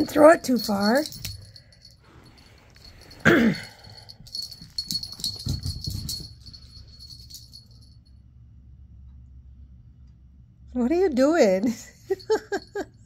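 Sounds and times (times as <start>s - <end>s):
metal tags jingling: 0.0s - 8.0s.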